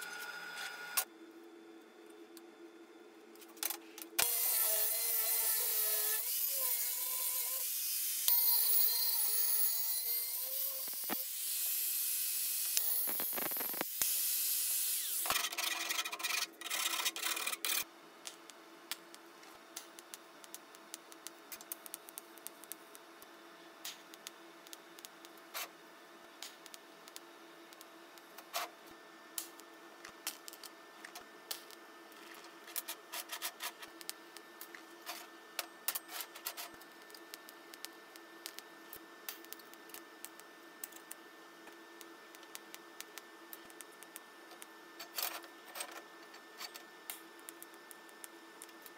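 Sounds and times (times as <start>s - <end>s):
welding hum with crackles: 0.0s - 48.9s
angle grinder cutting sheet metal: 4.2s - 13.8s.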